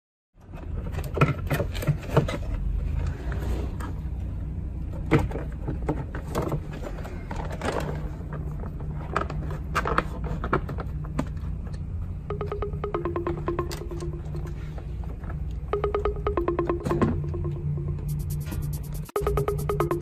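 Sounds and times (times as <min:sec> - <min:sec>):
steady low hum: 0:11.7 - 0:20.0.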